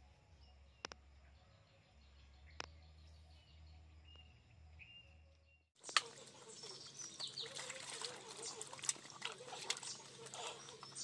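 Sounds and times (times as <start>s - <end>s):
bird chirps: 0.4s - 11.0s
water splashing in metal basin: 5.8s - 11.0s.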